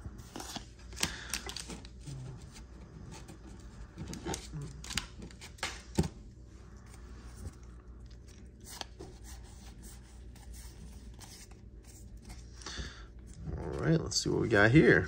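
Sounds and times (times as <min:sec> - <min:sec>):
foil wrapper crinkling: 0:00.2 - 0:02.2.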